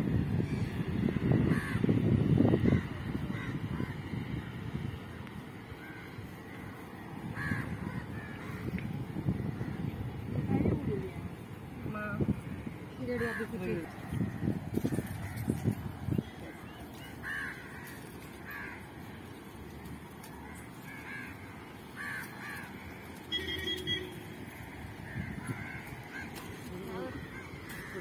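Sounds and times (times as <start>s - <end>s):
low outdoor background: 0.0s - 28.0s
birds calling: 5.5s - 28.0s
steady honk: 23.3s - 24.2s.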